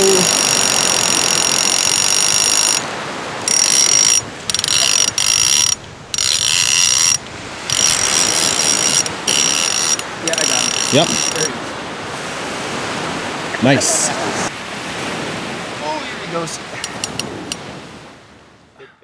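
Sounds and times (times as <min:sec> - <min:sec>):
fishing reel ratcheting buzz: 0:00.0 - 0:11.5.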